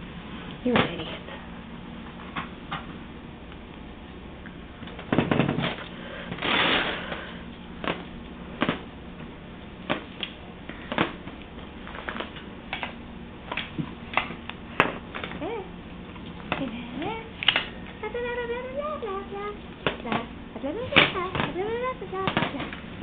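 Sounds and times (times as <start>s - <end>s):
low hum: 0.0s - 23.0s
rustling burst: 5.7s - 7.3s.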